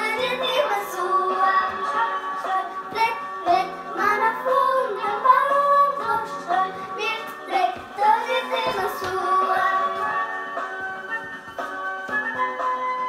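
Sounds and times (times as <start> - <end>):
child singing: 0.0 - 10.0
instrumental backing music: 0.0 - 13.0.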